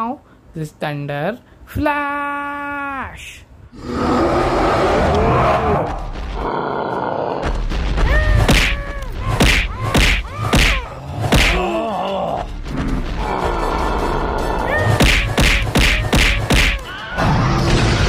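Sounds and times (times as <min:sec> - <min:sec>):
background music: 0:04.5 - 0:18.0
cartoon hits and thuds: 0:07.4 - 0:11.7, 0:14.8 - 0:16.9
character grunts and cries: 0:08.0 - 0:12.5.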